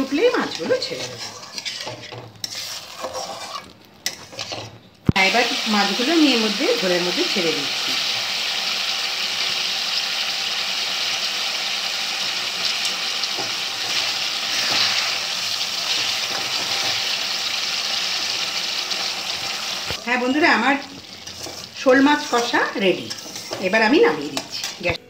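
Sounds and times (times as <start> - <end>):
spatula stirring: 0.0 - 4.9, 12.8 - 25.0
gravy sizzling and bubbling: 0.0 - 25.0.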